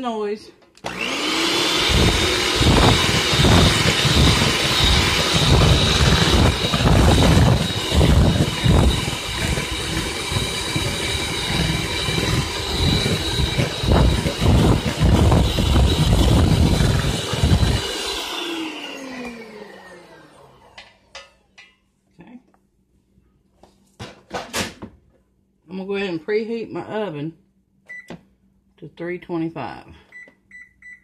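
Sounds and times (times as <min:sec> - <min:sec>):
electric hand mixer whining: 0:00.8 - 0:21.0.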